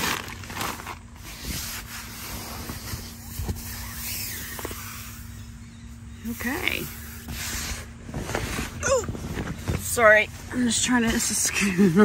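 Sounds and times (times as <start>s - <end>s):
tent fabric rustling: 0.0s - 5.3s, 6.4s - 12.0s
soft bumps: 7.3s - 11.6s.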